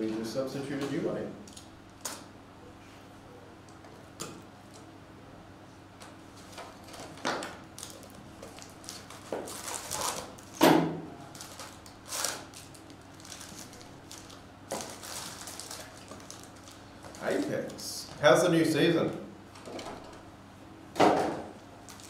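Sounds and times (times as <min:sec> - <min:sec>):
foil packs rustling: 0:06.4 - 0:10.6, 0:11.3 - 0:18.1.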